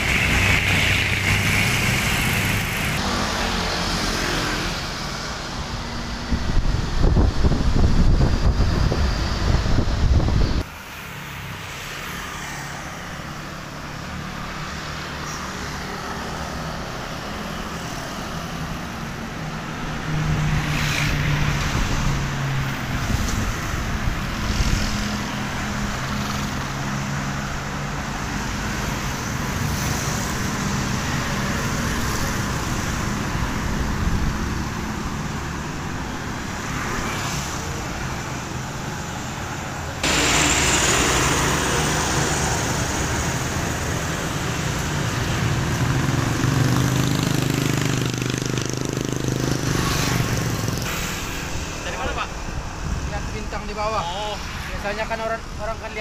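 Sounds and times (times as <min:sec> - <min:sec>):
cars passing: 0:00.0 - 0:56.0
low engine hum with road noise: 0:11.7 - 0:56.0.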